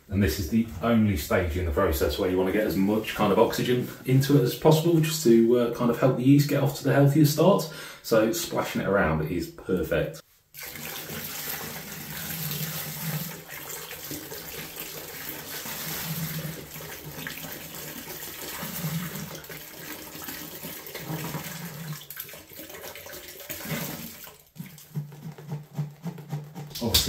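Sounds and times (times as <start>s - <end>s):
juice splashing into steel vessel: 10.6s - 25.3s.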